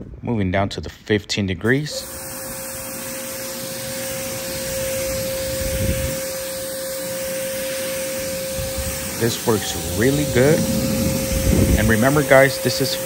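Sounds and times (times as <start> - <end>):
pressure washer spraying water: 2.0 - 13.0
steady tone: 8.5 - 12.6.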